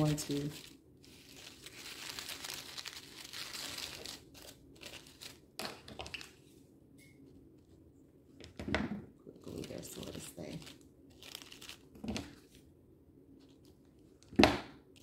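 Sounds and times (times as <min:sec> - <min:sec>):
paper filter rustling: 0:00.0 - 0:06.5, 0:09.4 - 0:12.6, 0:13.3 - 0:14.2.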